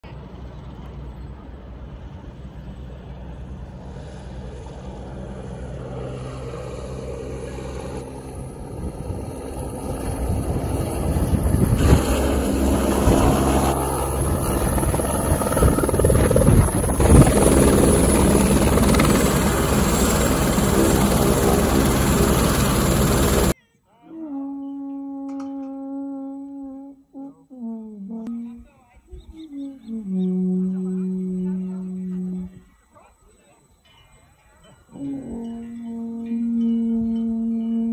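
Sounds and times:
helicopter rotor and turbine whine: 0:00.2 - 0:23.6.

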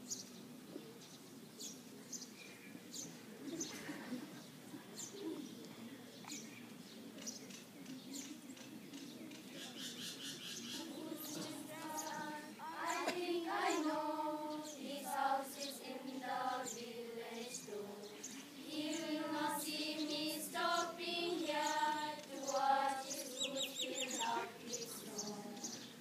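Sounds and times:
small birds chirping: 0:00.0 - 0:03.8, 0:04.4 - 0:26.0
murmur of people: 0:00.3 - 0:26.0
students singing in unison: 0:10.7 - 0:26.0.

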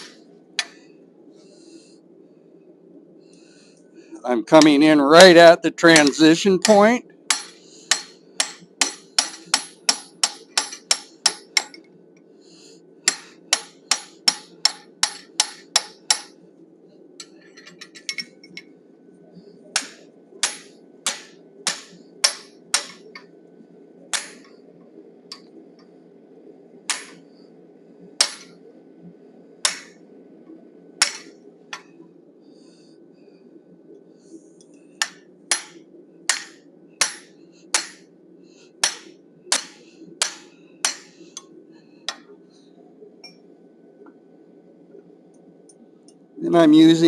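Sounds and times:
steady low hum: 0:00.0 - 0:47.0
hammer striking hot steel: 0:05.8 - 0:11.9, 0:13.0 - 0:16.4, 0:19.7 - 0:23.3, 0:24.1 - 0:24.6, 0:26.9 - 0:27.2, 0:28.2 - 0:28.6, 0:29.6 - 0:30.0, 0:31.0 - 0:31.9, 0:35.0 - 0:38.1, 0:38.8 - 0:41.5.

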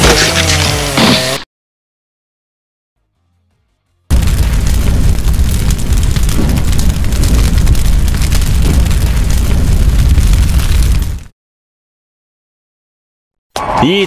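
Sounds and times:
flames rushing and crackling: 0:04.1 - 0:11.3.

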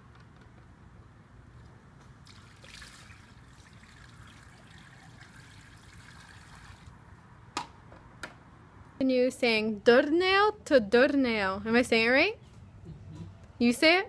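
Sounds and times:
water pouring onto asphalt: 0:02.2 - 0:07.0
water trickling from hose: 0:02.2 - 0:07.0.

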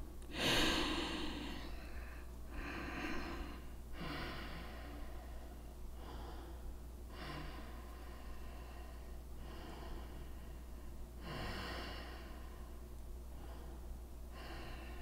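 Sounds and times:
low electrical hum: 0:00.0 - 0:15.0
person breathing slowly: 0:00.3 - 0:15.0.

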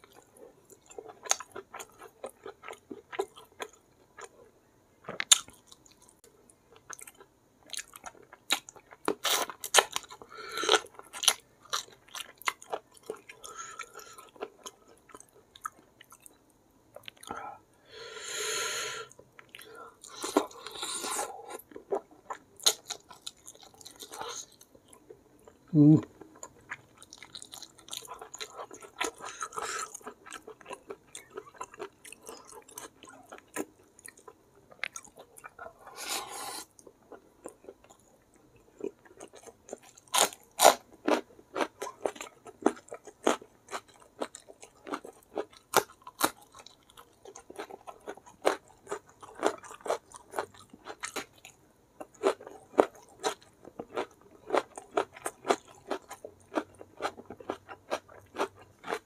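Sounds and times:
close chewing with wet smacks: 0:26.3 - 0:35.7, 0:41.0 - 0:59.0.

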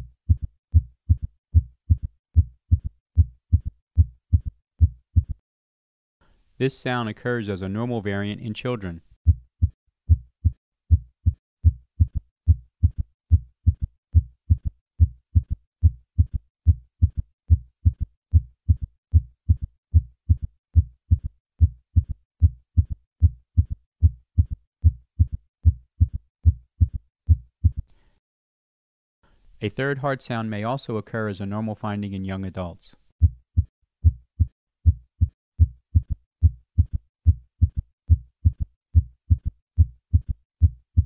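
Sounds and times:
heartbeat thuds: 0:00.0 - 0:05.4, 0:09.3 - 0:27.9, 0:33.2 - 0:41.0.

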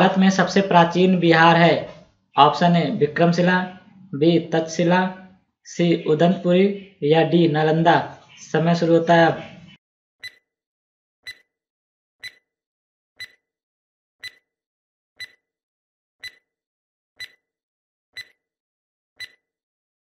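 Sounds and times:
clock-like timer ticks: 0:10.2 - 0:10.4, 0:11.3 - 0:11.5, 0:12.2 - 0:12.4, 0:13.2 - 0:13.4, 0:14.2 - 0:14.5, 0:15.2 - 0:15.4, 0:16.2 - 0:16.5, 0:17.2 - 0:17.4, 0:18.2 - 0:18.4, 0:19.2 - 0:19.5.

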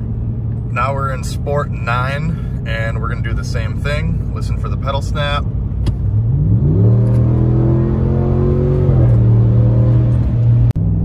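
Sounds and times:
truck engine revving: 0:05.9 - 0:11.0.

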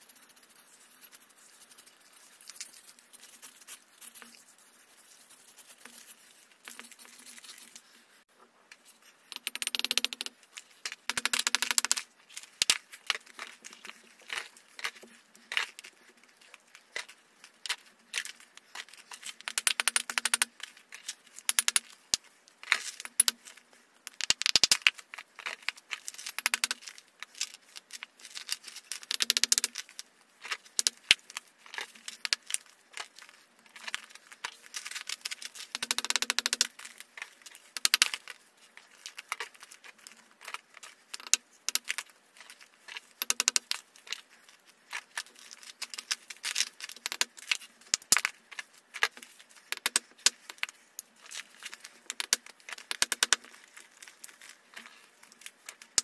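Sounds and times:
chalk flakes clicking and rattling: 0:00.0 - 0:08.0, 0:08.7 - 0:56.0
chalk crunching: 0:00.0 - 0:08.2.

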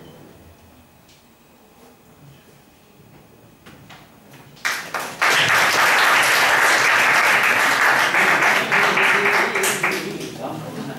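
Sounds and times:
students applauding: 0:04.6 - 0:10.4.

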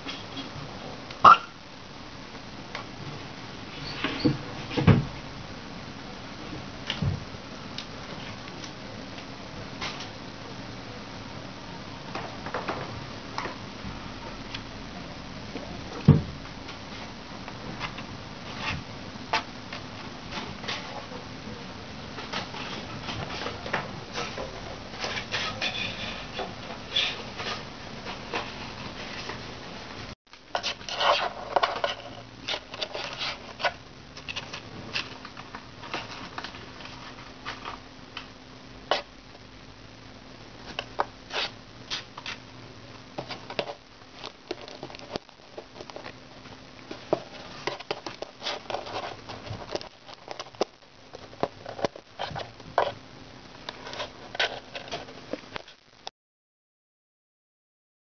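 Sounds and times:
kitten claws scratching cardboard: 0:47.1 - 0:53.0.

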